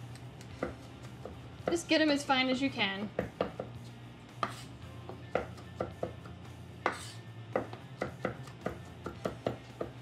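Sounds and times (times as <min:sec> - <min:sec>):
knife chopping on wooden board: 0:00.4 - 0:01.9, 0:03.1 - 0:03.8, 0:04.4 - 0:10.0.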